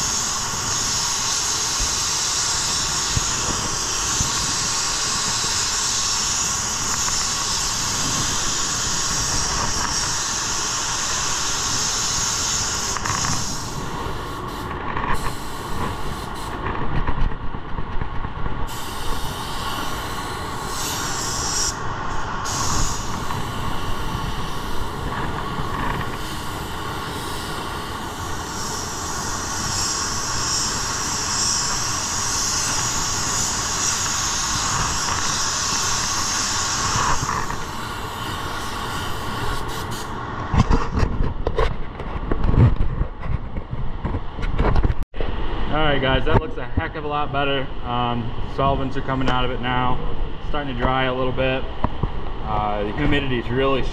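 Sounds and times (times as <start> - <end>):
spray gun hissing: 0.0 - 16.7, 18.6 - 40.3.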